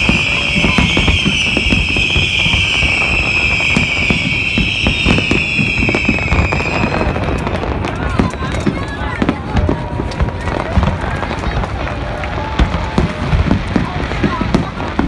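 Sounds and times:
high-pitched firework whistle: 0.0 - 9.3
fireworks booms and crackles: 0.0 - 15.0.

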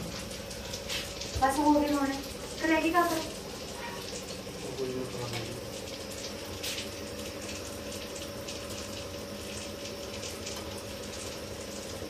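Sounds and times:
deep-frying sizzle with crackling: 0.0 - 12.0.

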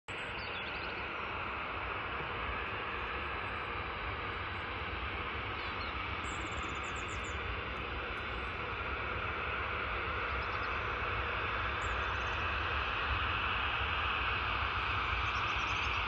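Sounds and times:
bird chirping: 0.1 - 1.1
distant jet engines roaring: 0.1 - 16.0.

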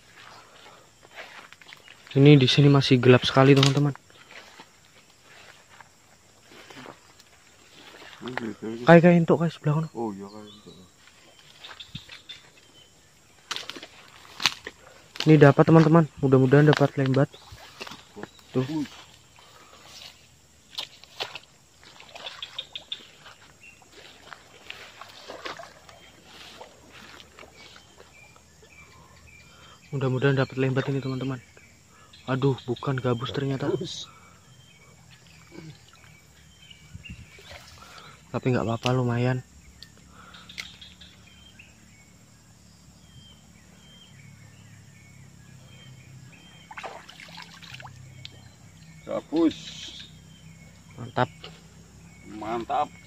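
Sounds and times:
rustling through wet grass: 0.0 - 9.1, 10.8 - 29.1, 34.9 - 38.9, 46.3 - 52.2
splashing in shallow water: 6.5 - 8.5, 13.4 - 15.2, 16.7 - 28.4, 37.2 - 38.3, 46.4 - 48.4
fish splashing in water: 20.7 - 28.1, 46.4 - 48.3.

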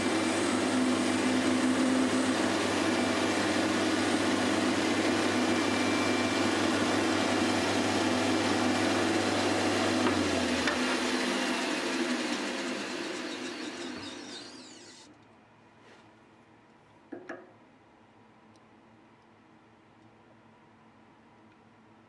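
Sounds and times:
metal lathe running: 0.0 - 15.1.

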